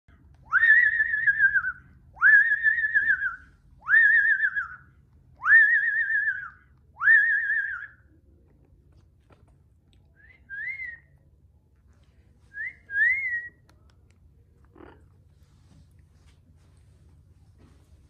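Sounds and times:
parrot whistled calls: 0.5s - 8.0s.

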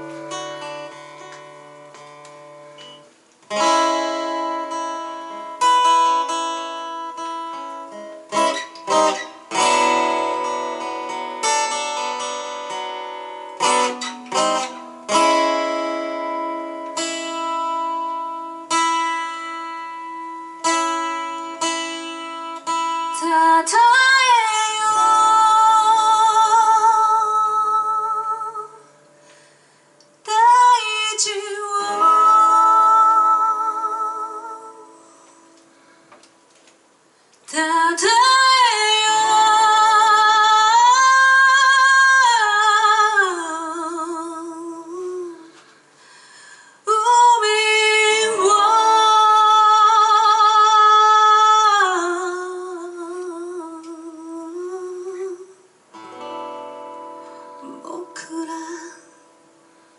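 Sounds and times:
faint acoustic guitar: 0.0s - 59.9s
person singing long notes: 30.2s - 35.2s, 57.6s - 59.3s.

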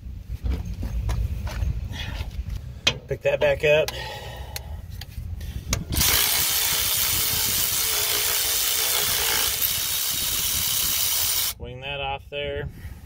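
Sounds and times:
cordless ratchet running: 5.9s - 11.6s.

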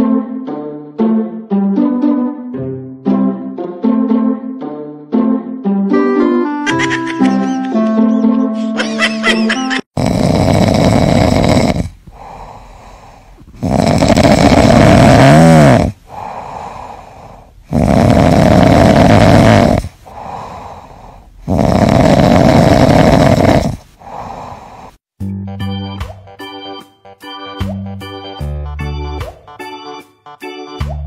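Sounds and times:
kitten snoring: 10.0s - 25.0s.

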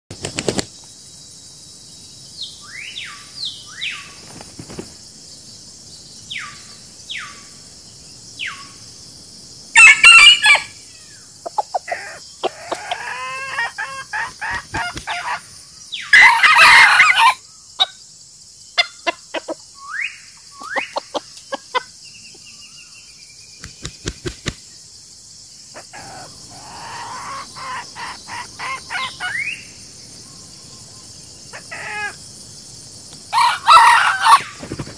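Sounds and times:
rooster crowing: 9.8s - 10.8s, 11.8s - 15.4s, 16.1s - 17.4s, 33.3s - 34.6s
hens clucking and chirping: 11.4s - 18.0s, 18.7s - 19.8s, 20.4s - 22.5s, 25.7s - 29.6s.

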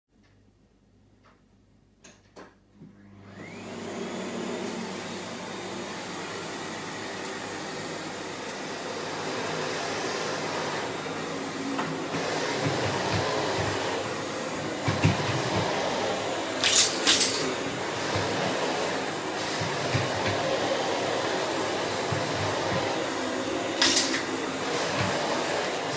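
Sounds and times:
vacuum cleaner running: 2.8s - 25.9s.

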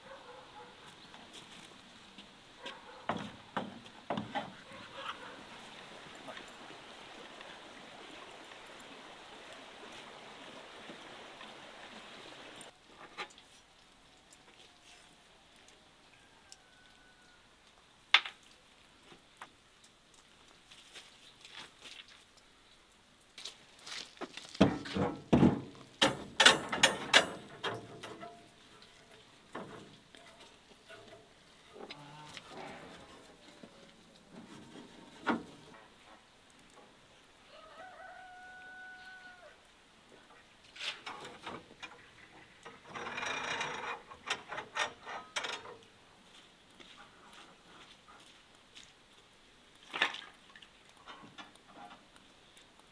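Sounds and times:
rooster crowing: 16.1s - 17.5s, 37.5s - 39.6s
rod knocking and rattling on wood: 24.6s - 28.4s.

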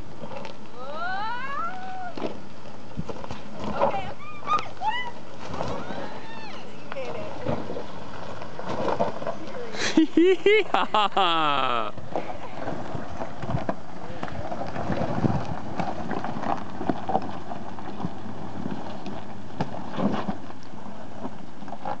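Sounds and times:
tyres crunching on stones: 1.5s - 10.5s, 11.2s - 22.0s
wind on microphone: 11.9s - 22.0s.

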